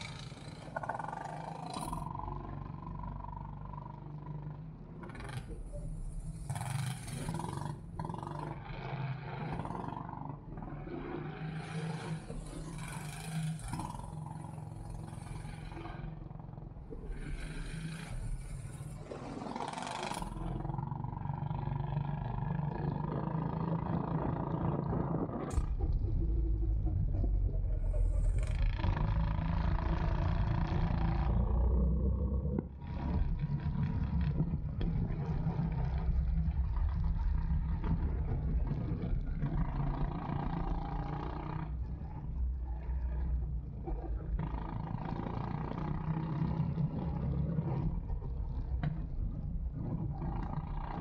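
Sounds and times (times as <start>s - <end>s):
heavy low rumble: 24.4s - 39.8s.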